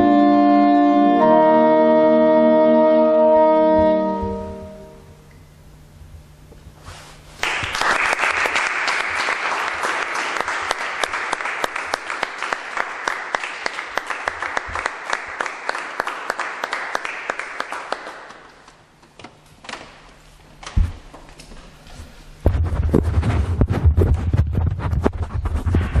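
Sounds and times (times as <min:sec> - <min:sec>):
audience applauding: 0:07.4 - 0:18.9.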